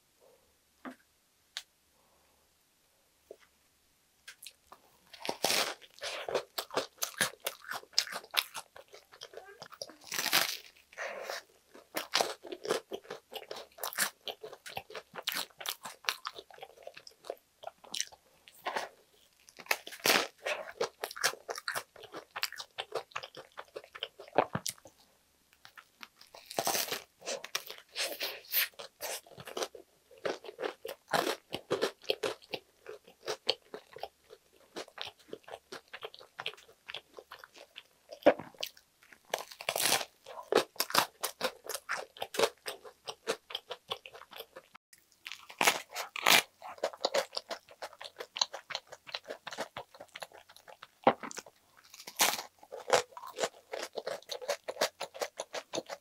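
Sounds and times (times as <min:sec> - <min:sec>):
wet crackly chewing: 0:04.3 - 0:24.9, 0:25.6 - 0:56.0
crunching bites into toasted bread: 0:51.1 - 0:56.0.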